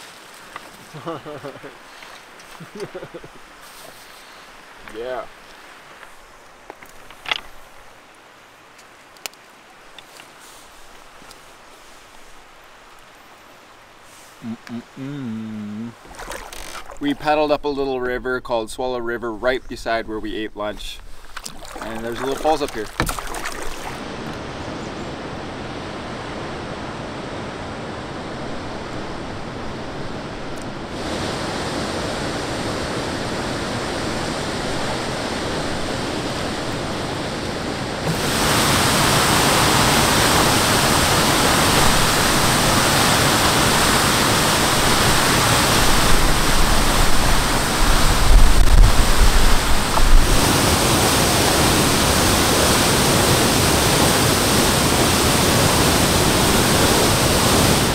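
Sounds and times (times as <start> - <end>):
low buffeting: 14.4 - 24.2
waterfall rushing: 21.6 - 57.9.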